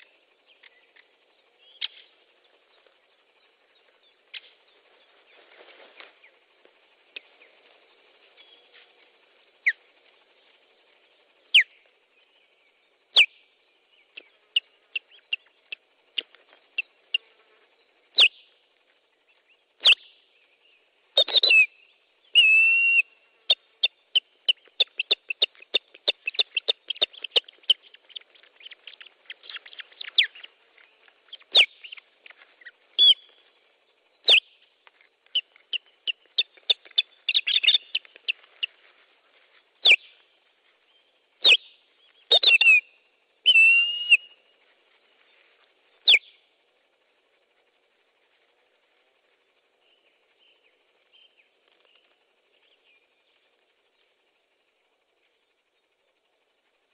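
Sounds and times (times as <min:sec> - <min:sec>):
osprey whistled alarm calls: 0:09.5 - 0:10.0, 0:11.5 - 0:12.3, 0:13.1 - 0:17.3, 0:18.1 - 0:18.6, 0:19.8 - 0:20.3, 0:21.1 - 0:33.6, 0:34.2 - 0:34.6, 0:35.3 - 0:38.8, 0:39.8 - 0:40.2, 0:40.9 - 0:44.6, 0:45.9 - 0:46.4
osprey downward slurred calls: 0:22.4 - 0:34.6, 0:35.2 - 0:40.2, 0:45.9 - 0:49.8.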